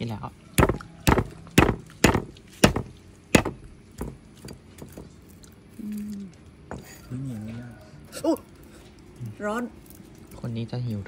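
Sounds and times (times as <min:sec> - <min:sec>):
nut shells cracked by strikes: 0:00.6 - 0:05.1.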